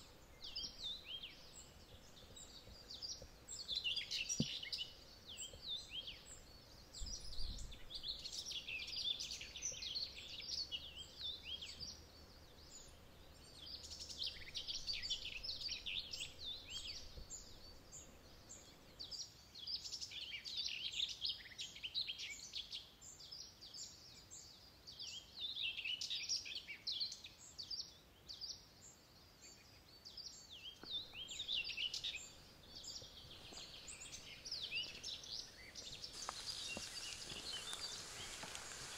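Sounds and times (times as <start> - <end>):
faint background hiss: 0.0 - 38.9
songbird chirping and whistling: 30.7 - 38.9.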